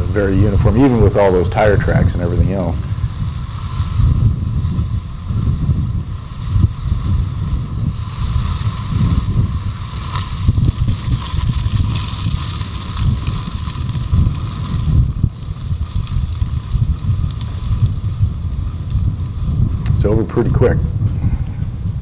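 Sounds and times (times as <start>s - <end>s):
fire flames rumbling and crackling: 0.0s - 22.0s
wind on microphone: 0.0s - 22.0s.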